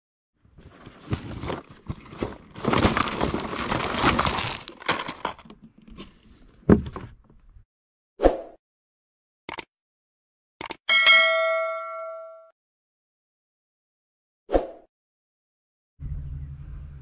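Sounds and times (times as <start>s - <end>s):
plastic packaging crinkling: 0.6s - 5.6s.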